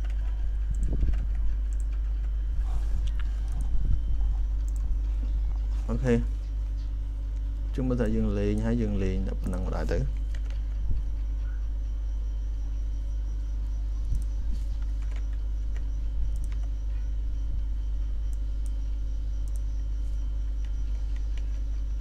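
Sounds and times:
computer mouse clicks: 0.0s - 2.4s, 14.1s - 16.7s, 19.4s - 19.7s
low background hum: 0.0s - 22.0s.

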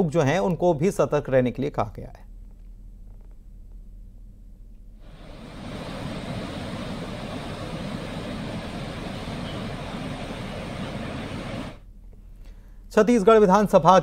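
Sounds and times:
rushing roar of outdoor noise: 5.1s - 11.8s.

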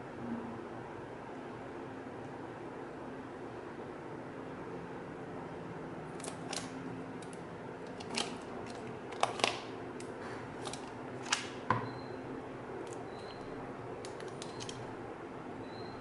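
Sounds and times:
tablet handling clicks and taps: 6.2s - 11.5s, 14.0s - 14.8s.

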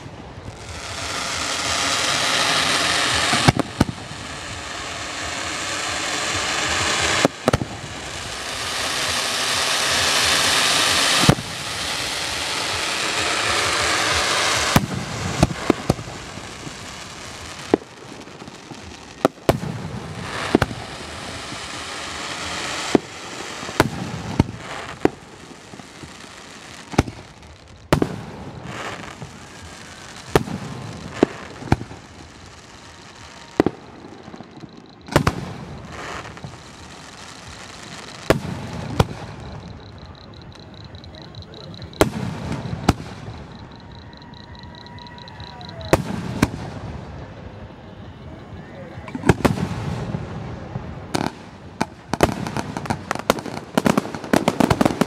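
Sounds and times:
firework bangs: 0.0s - 48.4s, 49.0s - 55.0s
firework hissing crackle: 0.0s - 55.0s.

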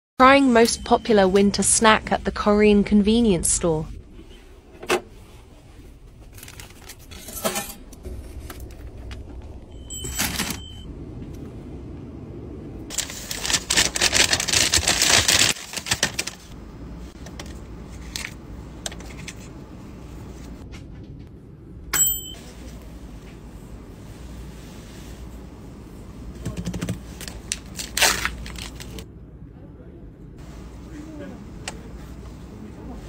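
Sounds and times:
handling sounds: 6.0s - 10.8s.

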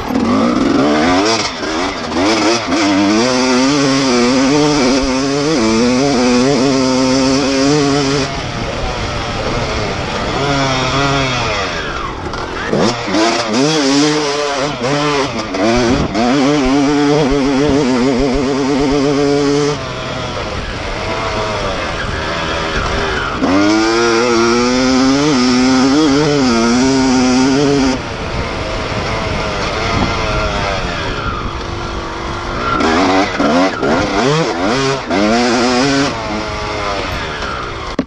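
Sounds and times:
dirt bike engine revving: 0.0s - 38.0s.

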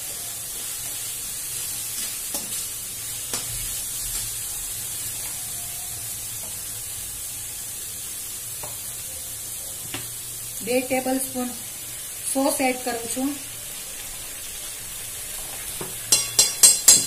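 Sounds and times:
vegetables sizzling in hot oil: 0.0s - 17.0s
metal spatula stirring: 16.0s - 17.0s.

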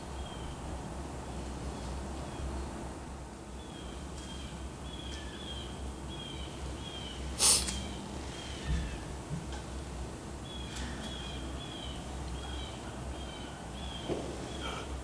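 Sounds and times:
sudden hissing burst: 7.4s - 7.8s.

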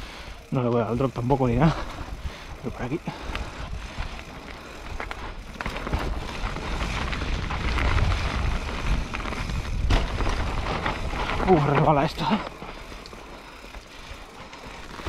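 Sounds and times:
bike rattling: 0.0s - 15.0s
bike tyres on dirt: 0.0s - 15.0s
wind rumble on microphone: 5.9s - 11.6s.

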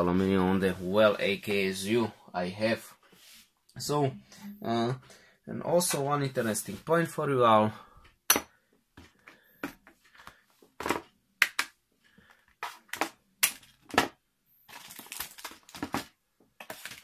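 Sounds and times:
plastic bags crinkling: 14.7s - 17.0s.

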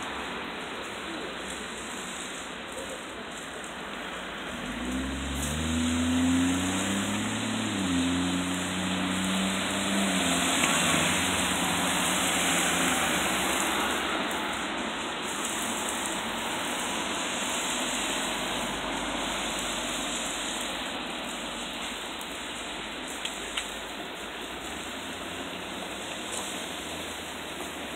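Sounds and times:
tyres hissing on wet road: 0.0s - 27.9s
passing car engine hum: 4.4s - 21.4s.

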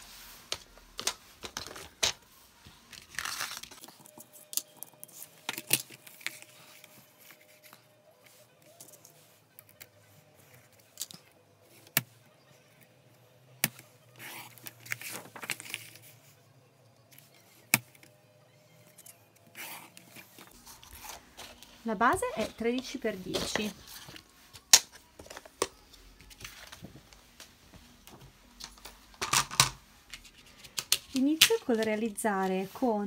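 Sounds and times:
card rustling and sliding: 19.4s - 33.0s.

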